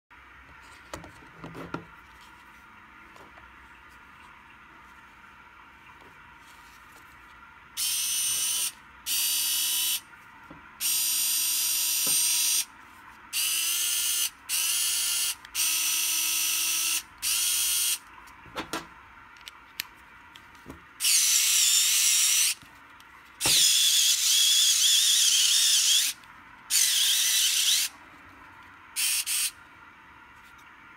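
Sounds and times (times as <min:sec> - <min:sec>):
electric screwdriver motor whining: 0:07.8 - 0:10.0, 0:10.8 - 0:12.7, 0:13.4 - 0:18.0, 0:21.0 - 0:22.6, 0:23.4 - 0:27.9, 0:29.0 - 0:29.6.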